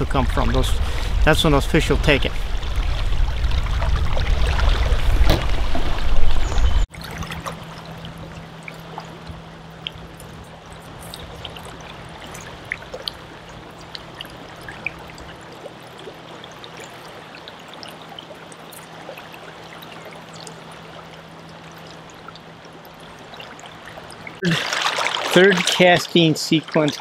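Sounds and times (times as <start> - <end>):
river water rushing: 10.8 - 27.0.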